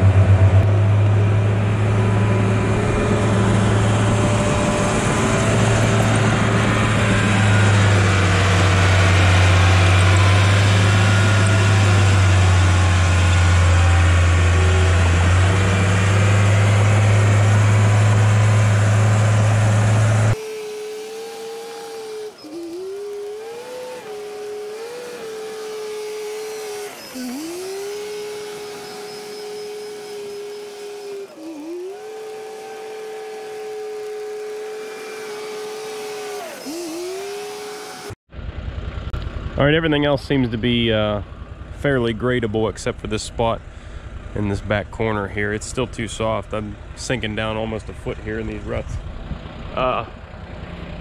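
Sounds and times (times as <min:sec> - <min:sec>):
thin whine: 0:00.0 - 0:38.2
bulldozer diesel engine drone: 0:00.0 - 0:51.0.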